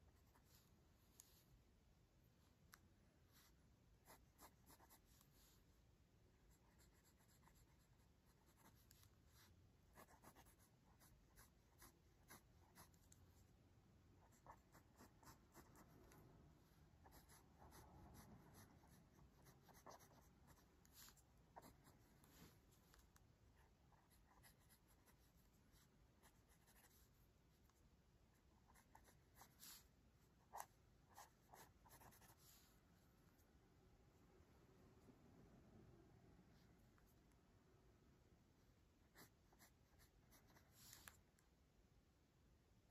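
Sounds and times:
pencil scratching on paper: 0:03.3 - 0:05.6, 0:06.5 - 0:13.2, 0:14.2 - 0:16.2, 0:17.0 - 0:27.8, 0:28.4 - 0:32.6, 0:39.0 - 0:41.2.

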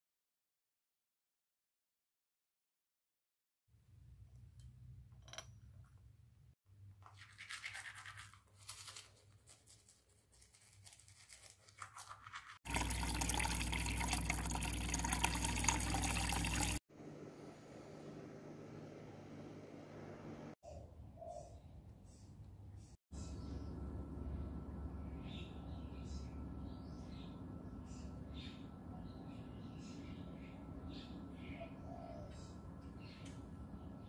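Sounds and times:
toothbrush scrubbing teeth: 0:07.0 - 0:12.7
tap running into a jug: 0:12.7 - 0:16.8.

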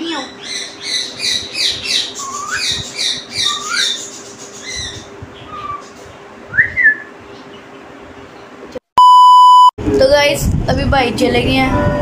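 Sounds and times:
parakeet chirping: 0:00.0 - 0:06.2
parakeet whistling: 0:00.2 - 0:07.1.

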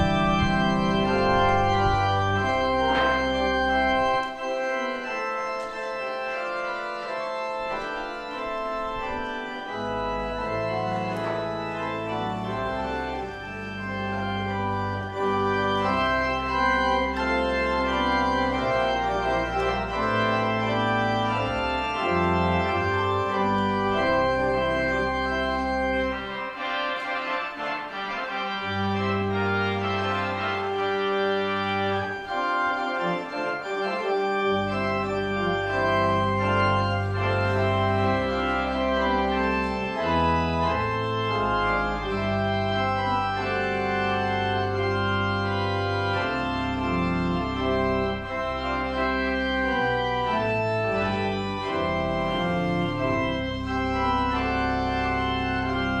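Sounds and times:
church organ chords: 0:00.0 - 0:56.0.

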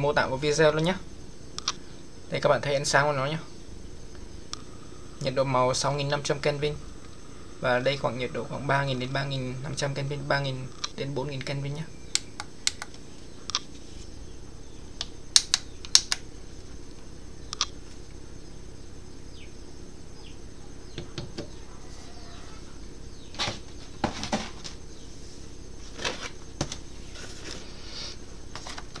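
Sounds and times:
faint steady hum: 0:00.0 - 0:29.0
sharp clicks: 0:01.6 - 0:01.8, 0:12.1 - 0:13.7, 0:15.0 - 0:16.3, 0:17.5 - 0:17.8
objects handled on a desk: 0:23.3 - 0:24.8, 0:28.5 - 0:29.0.

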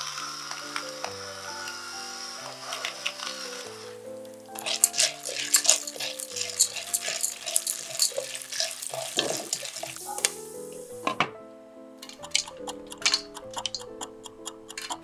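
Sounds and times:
popcorn kernels sizzling in oil: 0:00.0 - 0:11.2, 0:12.0 - 0:15.0
background music: 0:00.0 - 0:15.0
wooden spoon stirring in pot: 0:04.5 - 0:10.8, 0:12.0 - 0:15.0.

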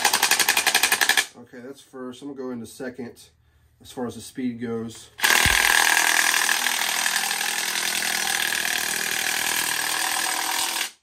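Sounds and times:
impact driver spinning crimper: 0:05.2 - 0:11.0.

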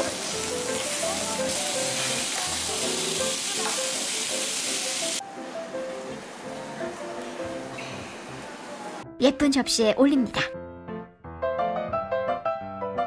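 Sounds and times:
meat sizzling on a griddle: 0:00.0 - 0:05.2.

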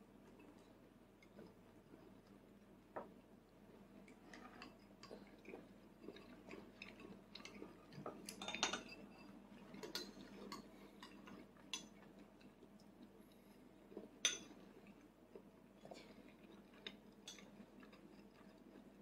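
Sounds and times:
soft chewing: 0:00.0 - 0:19.0.

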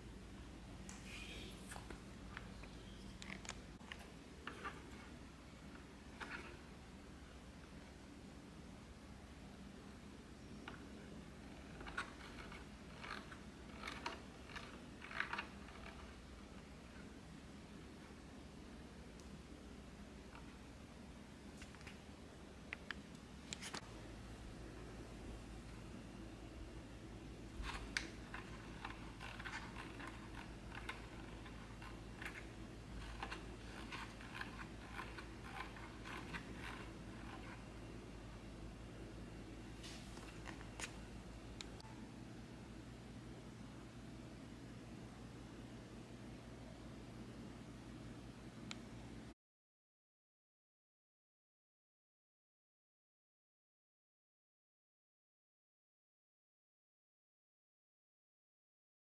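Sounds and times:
rotary dials clicking: 0:11.6 - 0:16.1, 0:27.6 - 0:37.7.

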